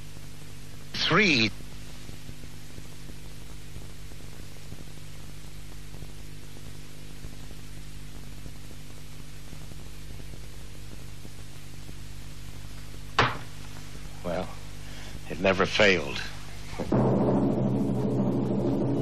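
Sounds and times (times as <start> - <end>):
electrical hum: 0.0 - 19.0.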